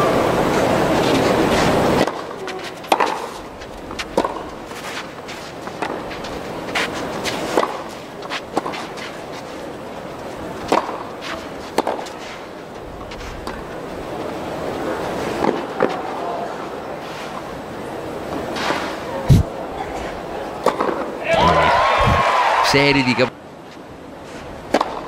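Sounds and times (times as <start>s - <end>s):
racket strings hitting ball: 4.2s - 4.5s.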